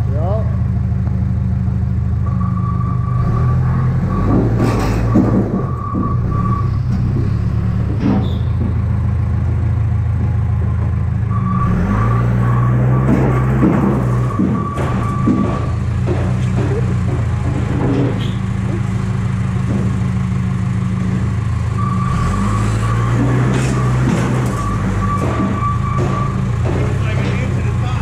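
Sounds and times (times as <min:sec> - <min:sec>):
vehicle engine running: 0:00.0 - 0:28.0
sharp metal knocks: 0:03.4 - 0:09.1, 0:12.4 - 0:20.4, 0:22.8 - 0:28.0.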